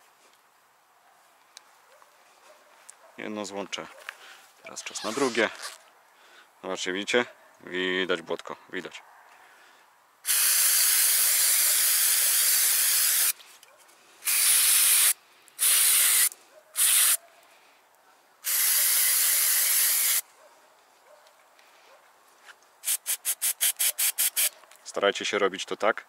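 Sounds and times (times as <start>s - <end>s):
short scratchy strokes: 4.8s - 5.8s
aerosol spray hissing: 10.3s - 13.4s, 14.2s - 17.2s, 18.4s - 20.2s, 22.8s - 24.5s.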